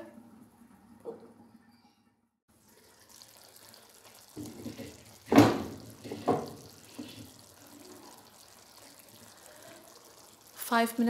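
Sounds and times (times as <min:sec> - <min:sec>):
curry bubbling in pan: 0:02.5 - 0:11.0.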